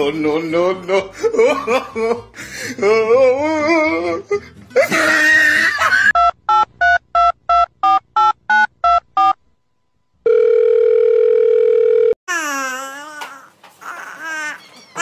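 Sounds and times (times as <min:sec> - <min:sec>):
steady phone tone: 0:10.2 - 0:12.2.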